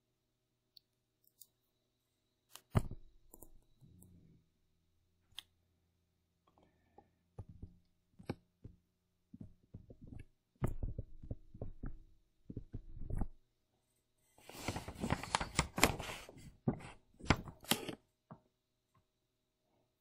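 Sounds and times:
stylus tapping on tablet screen: 7.4s - 13.4s.

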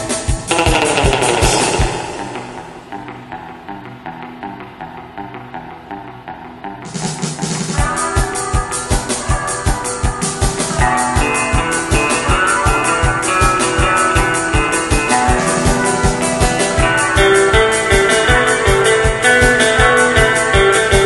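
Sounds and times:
quick drum beat: 0.0s - 2.8s, 7.6s - 21.0s
melody: 10.2s - 19.5s.

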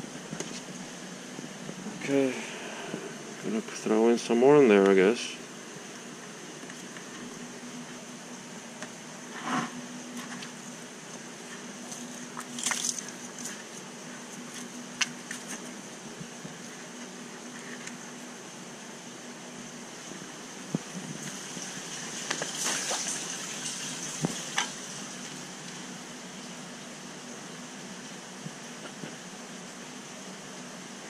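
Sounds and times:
aquarium water hissing: 0.0s - 31.0s
water splashing: 21.5s - 24.6s.

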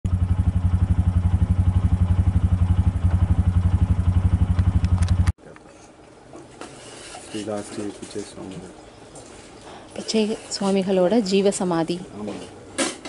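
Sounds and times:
engine idling: 0.1s - 5.3s.

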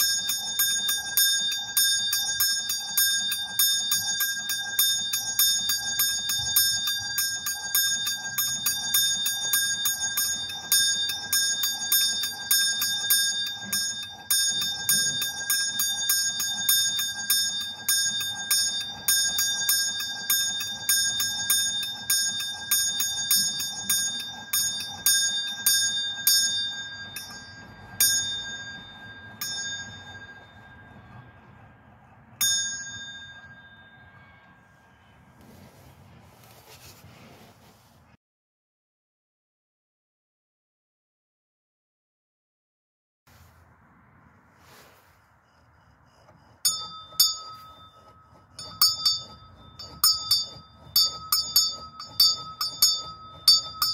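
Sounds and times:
small bell ringing: 0.0s - 31.6s, 32.4s - 34.8s, 46.6s - 53.9s.

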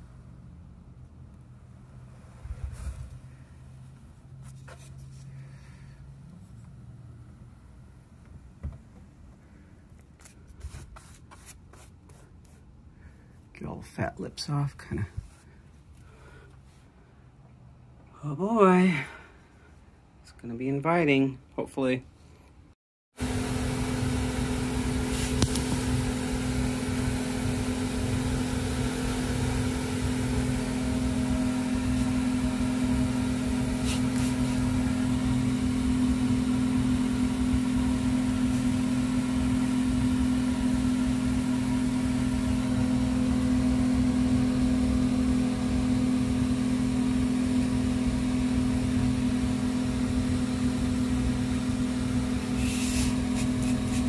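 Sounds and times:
steady mechanical hum: 23.2s - 54.0s.

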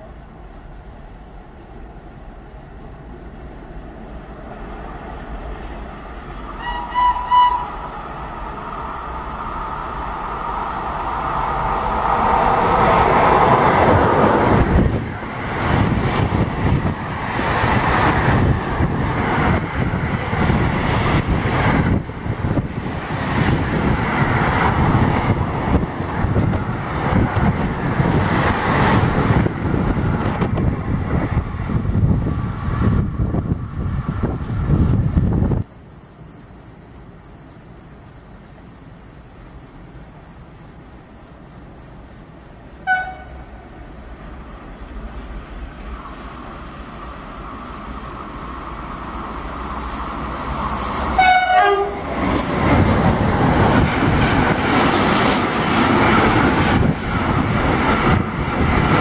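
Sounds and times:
crickets trilling: 0.0s - 13.8s, 34.2s - 51.5s
train rumbling past: 0.0s - 59.0s.

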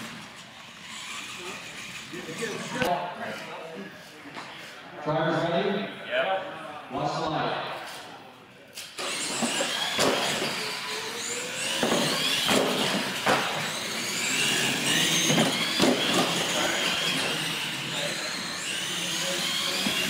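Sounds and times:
electric motors whining: 0.0s - 2.9s, 8.8s - 20.0s.

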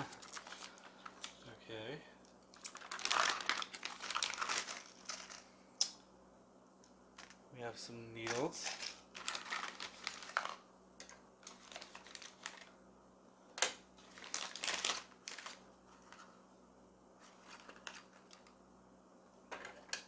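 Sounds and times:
plastic bags crinkling: 0.0s - 1.5s, 2.5s - 5.5s, 8.2s - 10.6s, 11.4s - 12.7s, 14.0s - 16.3s.

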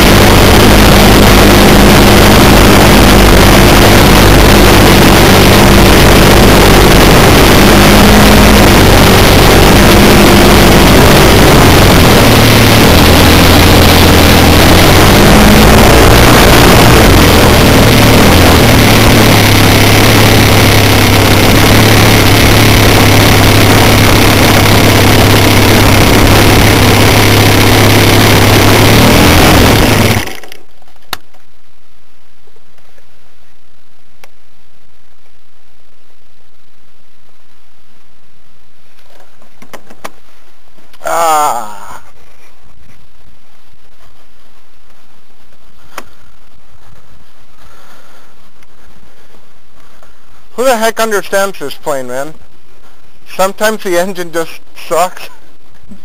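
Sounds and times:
model plane engine idling: 0.0s - 30.8s, 50.6s - 51.9s.

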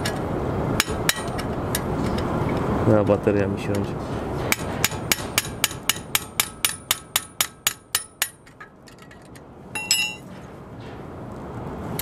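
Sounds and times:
ringing metal clink: 9.8s - 10.3s.

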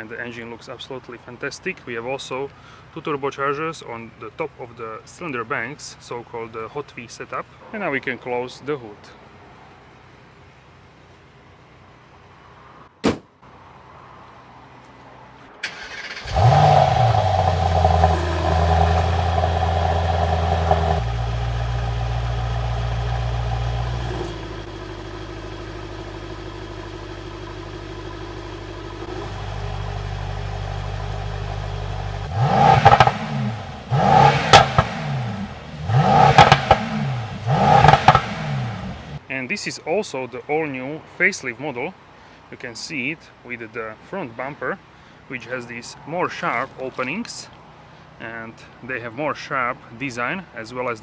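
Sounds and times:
car engine starting and idling: 14.2s - 39.3s
car engine revving: 15.6s - 39.2s.

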